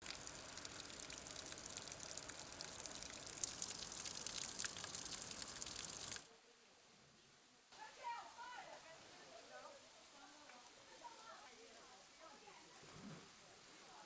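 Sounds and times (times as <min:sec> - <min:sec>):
water trickling and splashing on rock: 0:00.0 - 0:06.3
faint hiss: 0:00.0 - 0:14.0.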